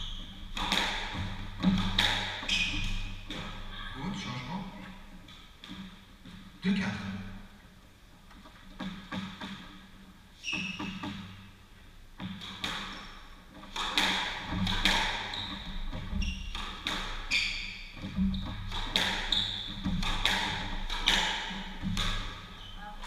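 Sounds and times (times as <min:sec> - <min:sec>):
shoes squeaking on wooden floor: 0:00.0 - 0:00.6, 0:02.4 - 0:03.6, 0:10.4 - 0:11.2, 0:15.2 - 0:20.8
squash ball hitting racquets and walls: 0:00.0 - 0:03.8, 0:05.3 - 0:06.6, 0:08.7 - 0:09.9, 0:10.5 - 0:11.5, 0:12.1 - 0:22.8.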